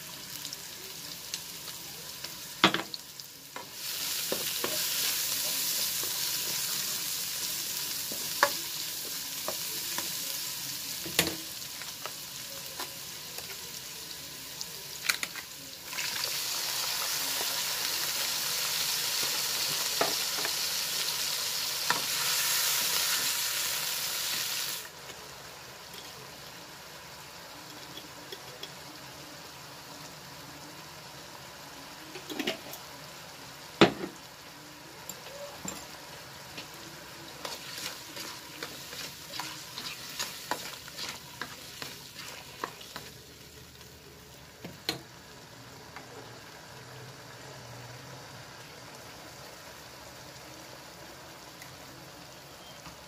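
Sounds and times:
vegetables sizzling in a wok: 0.0s - 53.0s.

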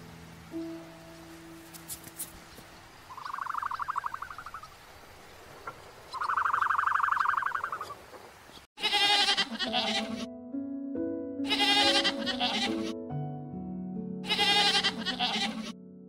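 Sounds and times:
pulsing trill calls: 3.1s - 4.7s, 6.1s - 8.0s
goat bleating: 8.8s - 10.3s, 11.4s - 12.9s, 14.2s - 15.8s.

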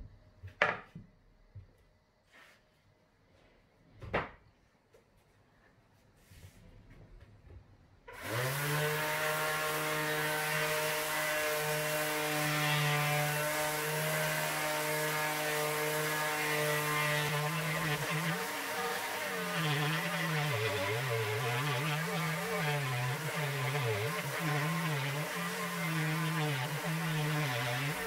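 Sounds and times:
orbital sander whining on wood: 8.1s - 28.0s.

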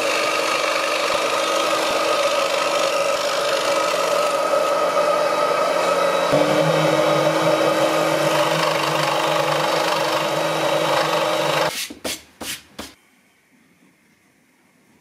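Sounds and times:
scroll saw buzzing: 0.0s - 11.7s.

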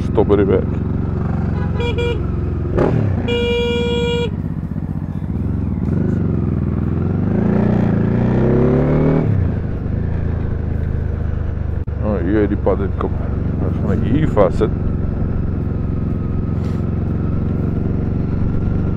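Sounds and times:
motorcycle engine accelerating: 0.0s - 18.9s
vehicle horn beeping: 1.4s - 4.6s.

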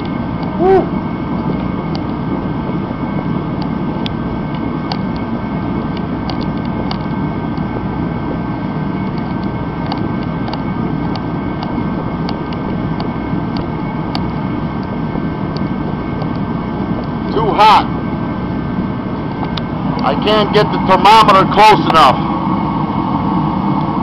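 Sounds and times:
heater fan and burner running: 0.0s - 24.0s.

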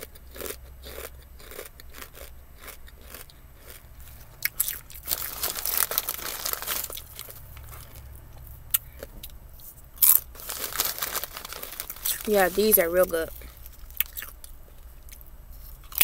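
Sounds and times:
crunching and chewing chips: 0.0s - 16.0s
chip bag rustling: 4.6s - 8.0s, 10.0s - 14.3s.

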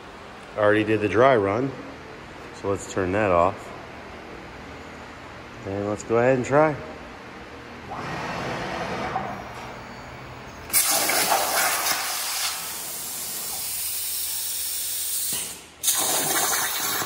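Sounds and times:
plasma torch hissing: 10.7s - 17.0s.

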